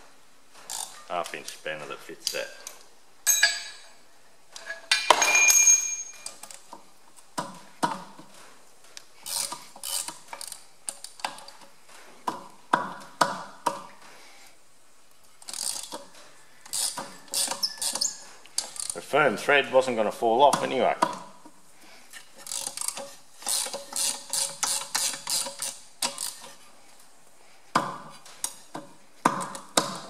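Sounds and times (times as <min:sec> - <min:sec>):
spanner clinking on bolts: 0:03.2 - 0:03.9.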